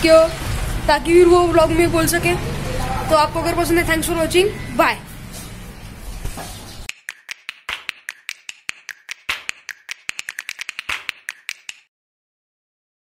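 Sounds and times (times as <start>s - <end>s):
quick sharp clicks: 6.9s - 11.9s.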